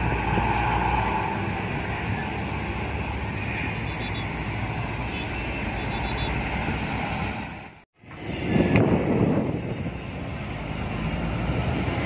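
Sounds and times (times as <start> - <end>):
bus passing close by: 0.0 - 12.0
heavy road traffic rumble: 0.0 - 12.0.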